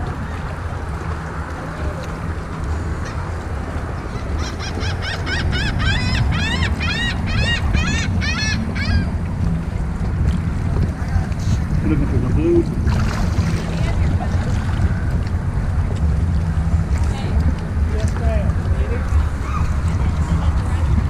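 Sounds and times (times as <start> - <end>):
steady low rumble: 0.0 - 21.0
bird calling loud notes: 4.1 - 9.1.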